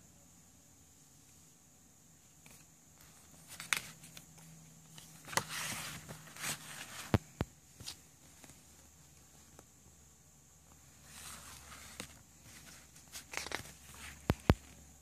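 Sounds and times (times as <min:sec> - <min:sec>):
cardboard and paper rustling: 0:02.4 - 0:09.6, 0:10.7 - 0:14.8.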